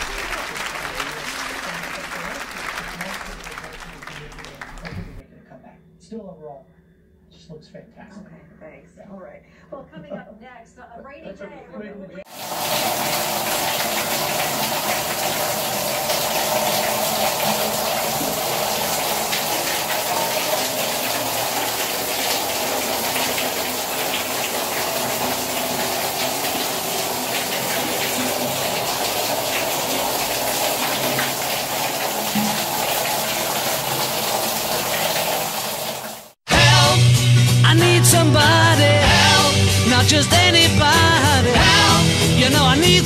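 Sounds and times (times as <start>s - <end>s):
shower water spraying: 12.3s - 36.4s.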